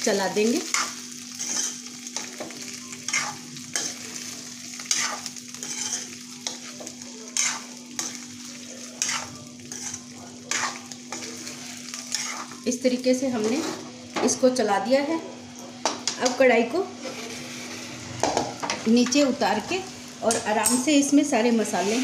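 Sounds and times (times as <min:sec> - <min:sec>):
fruit sizzling in hot oil: 0:00.0 - 0:22.0
metal spoon scraping pan: 0:00.7 - 0:01.9, 0:04.8 - 0:06.7, 0:07.4 - 0:08.2, 0:09.0 - 0:12.6.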